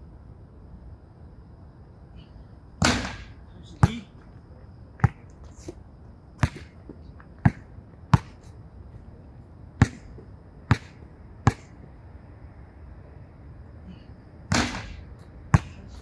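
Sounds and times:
basketball bouncing on hard court: 0:06.4 - 0:06.8, 0:07.4 - 0:08.4, 0:09.8 - 0:11.6.

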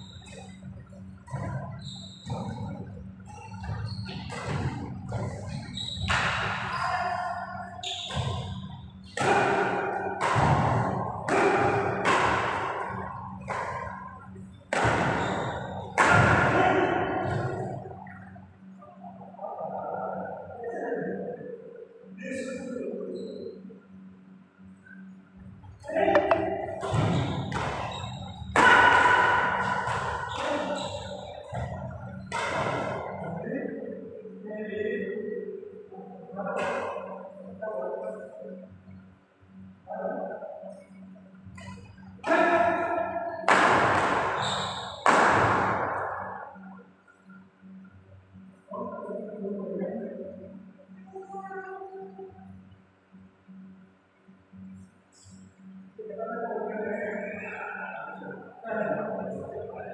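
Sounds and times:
rackets hitting shuttlecock: 0:08.1 - 0:15.2, 0:26.1 - 0:30.7, 0:43.4 - 0:44.4, 0:45.0 - 0:46.3.

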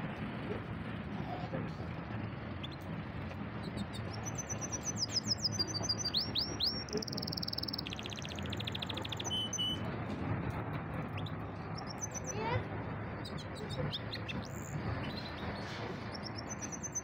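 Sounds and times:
low background rumble: 0:00.0 - 0:17.0
canary singing: 0:03.5 - 0:09.9, 0:11.0 - 0:17.0.

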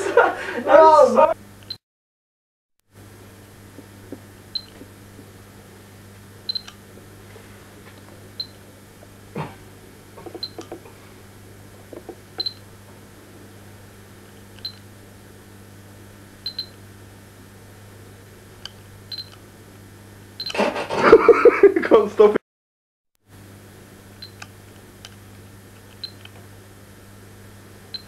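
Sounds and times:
low electrical hum: 0:00.0 - 0:01.8, 0:02.9 - 0:22.4, 0:23.3 - 0:28.0
soft clicks: 0:24.2 - 0:26.4.

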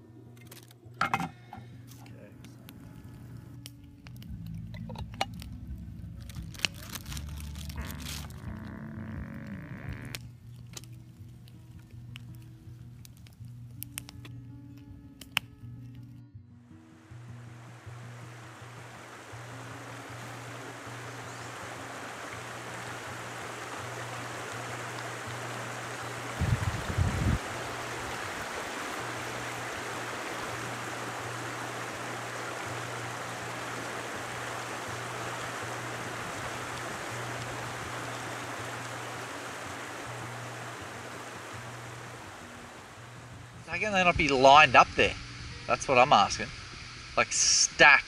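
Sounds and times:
background music with low bass: 0:00.0 - 0:21.7
rocky stream rushing: 0:17.0 - 0:44.5.

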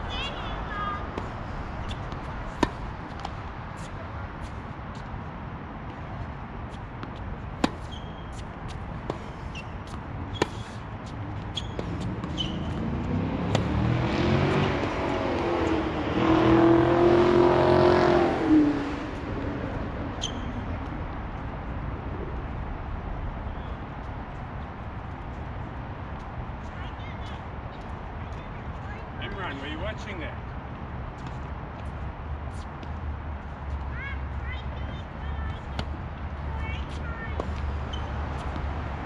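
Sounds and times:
tennis balls struck by rackets: 0:00.4 - 0:04.6, 0:06.7 - 0:13.8, 0:34.8 - 0:38.8
car passing by: 0:11.8 - 0:19.4.

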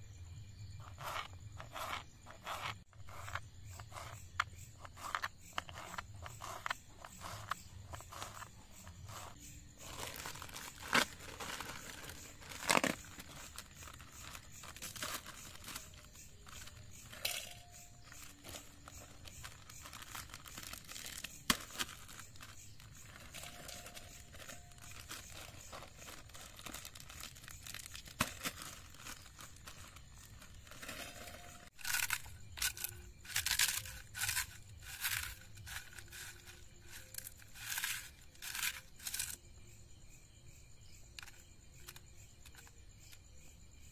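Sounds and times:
crisp packet crinkling and tearing: 0:09.2 - 0:39.4
chips crushed by hand: 0:23.2 - 0:39.4.

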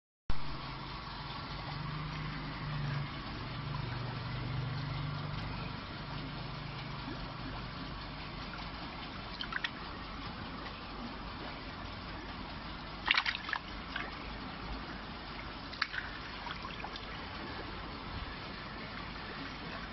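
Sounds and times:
low hum: 0:00.3 - 0:19.9
water sloshing and splashing: 0:06.1 - 0:19.9.

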